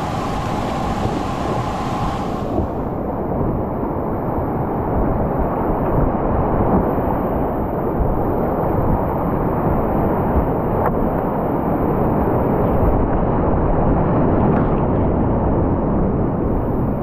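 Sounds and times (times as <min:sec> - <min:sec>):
whitewater rushing: 0:00.0 - 0:03.0.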